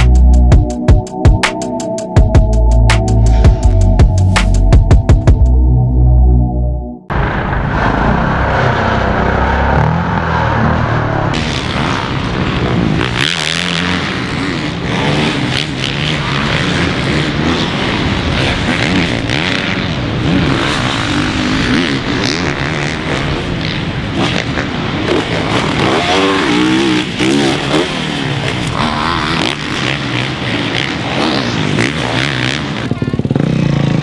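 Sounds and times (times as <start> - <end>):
dirt bikes revving: 7.2 - 34.0.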